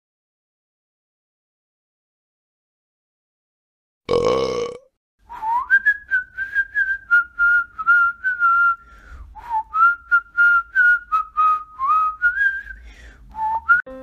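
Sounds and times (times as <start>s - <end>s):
loud burp: 4.1s - 4.9s
whistled tune: 5.3s - 14.0s.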